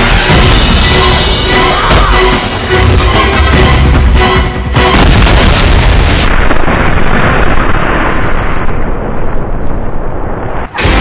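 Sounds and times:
explosion blast with rumble: 0:04.8 - 0:11.0.

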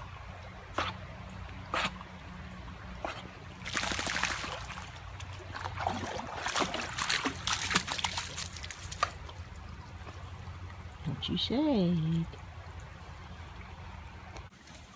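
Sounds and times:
dog splashing through water: 0:03.1 - 0:10.4
running water: 0:03.4 - 0:14.9.

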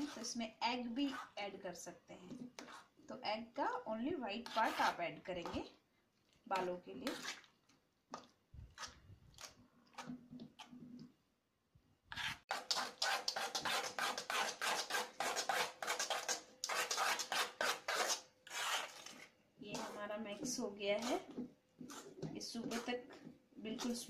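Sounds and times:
hands rubbing wet paste in bowl: 0:12.2 - 0:23.1.

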